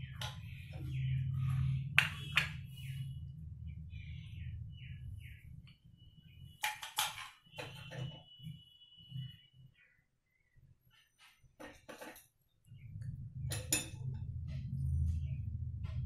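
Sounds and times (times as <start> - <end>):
small bird chirping: 0.0 - 6.6
steady low hum: 12.8 - 16.0.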